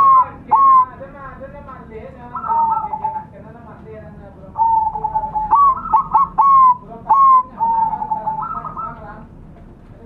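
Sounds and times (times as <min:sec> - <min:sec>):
dove cooing: 0:00.0 - 0:00.9, 0:02.4 - 0:03.3, 0:04.6 - 0:09.1.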